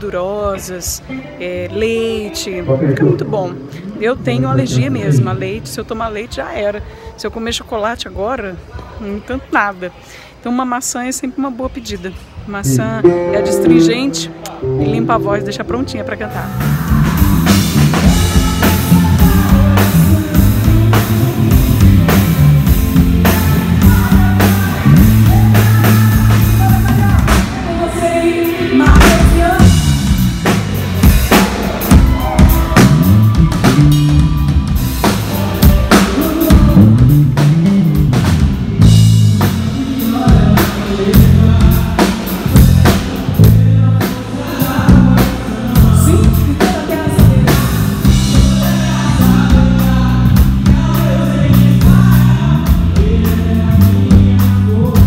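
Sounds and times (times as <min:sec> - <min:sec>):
bass line: 0:12.6 - 0:27.4, 0:29.0 - 0:55.0
electric guitar: 0:12.6 - 0:27.8
drum kit: 0:12.7 - 0:55.0
woman singing into microphone: 0:18.0 - 0:22.2, 0:23.2 - 0:29.9, 0:43.4 - 0:50.1.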